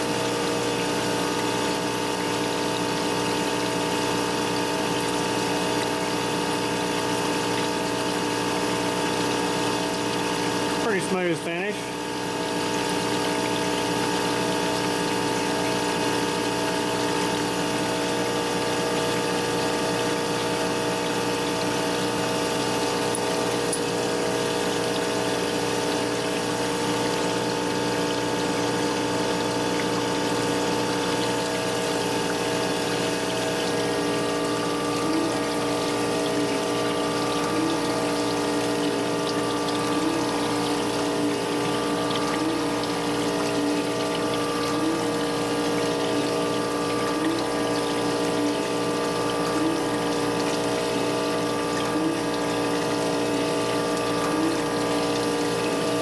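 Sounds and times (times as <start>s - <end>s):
coolant pump running: 0.0s - 56.0s
coolant splashing: 0.0s - 56.0s.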